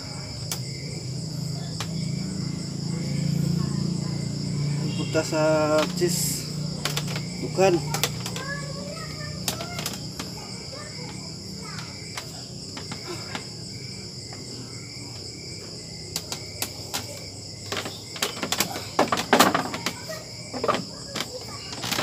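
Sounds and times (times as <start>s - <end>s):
insects chirring: 0.0s - 22.0s
knocks and clatter: 16.2s - 22.0s.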